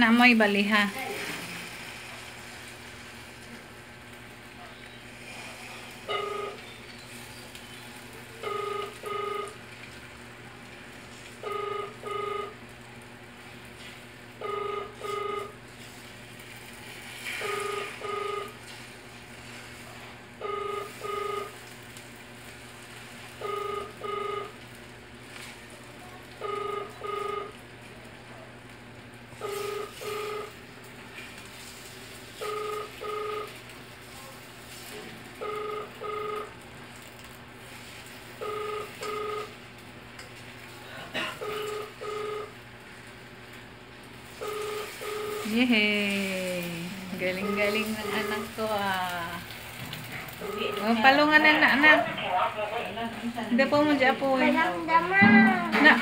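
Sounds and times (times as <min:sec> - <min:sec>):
steady low hum: 0:00.0 - 0:56.0
electronic beeper beeps: 0:47.4 - 0:48.4.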